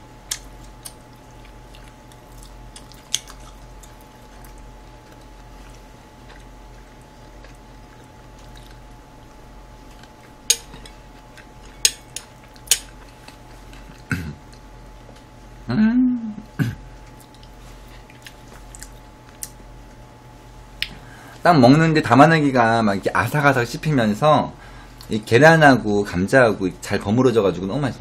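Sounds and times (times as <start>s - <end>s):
faint steady hum: 0.0s - 28.0s
quiet chewing: 0.2s - 15.3s, 16.9s - 20.0s
metal spoon clinking on dish: 11.6s - 12.9s.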